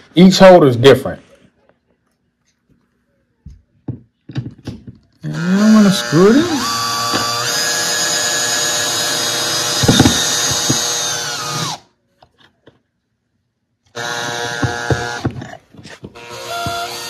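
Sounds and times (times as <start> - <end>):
cordless drill motor: 5.2 - 11.9, 13.9 - 17.0
sharp knocks: 9.7 - 11.0, 14.2 - 17.0.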